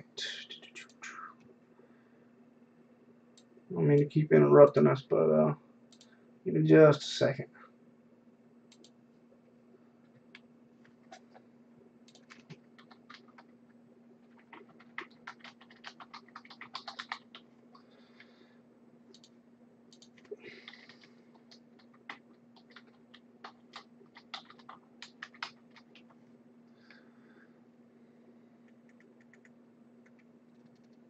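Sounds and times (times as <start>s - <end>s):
low steady hum: 0.0s - 31.0s
typing on computer keyboard: 12.1s - 13.5s, 14.3s - 17.8s, 19.9s - 26.2s, 28.9s - 31.0s.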